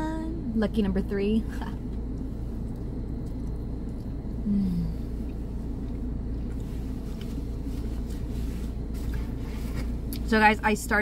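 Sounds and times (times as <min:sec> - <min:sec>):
low hum inside car: 0:00.0 - 0:11.0
person chewing food: 0:02.0 - 0:04.4
person humming mmm: 0:04.4 - 0:05.2.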